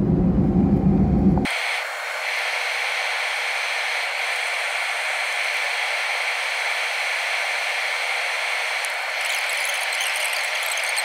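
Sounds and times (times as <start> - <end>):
airplane engines at low power: 0.0 - 11.0.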